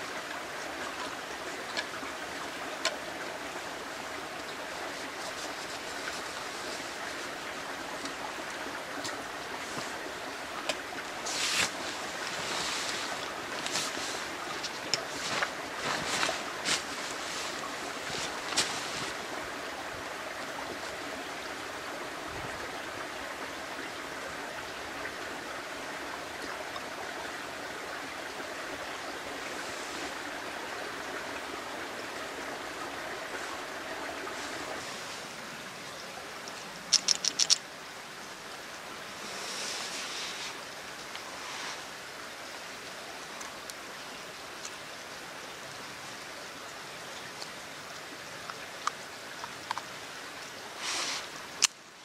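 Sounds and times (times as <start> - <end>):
sharp clicks of camp-stove gear: 51.6 - 51.8.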